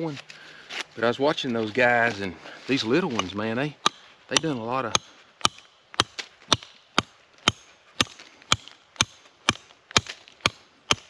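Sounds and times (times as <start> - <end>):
hatchet chopping log: 3.1 - 11.0.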